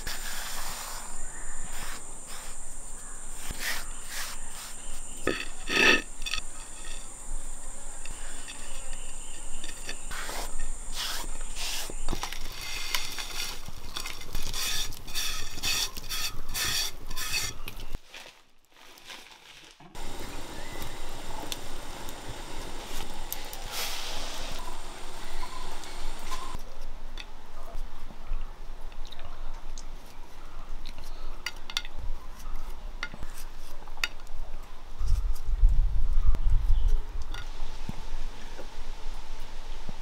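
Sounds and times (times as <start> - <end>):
high insect drone: 0.6 - 12.8, 20.0 - 26.6
utensils scraping a bowl: 3.4 - 12.0, 12.6 - 18.0.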